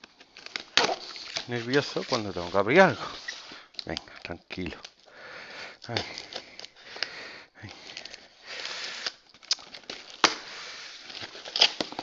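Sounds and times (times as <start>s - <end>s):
blade slicing packing tape: 11.2s - 12.0s.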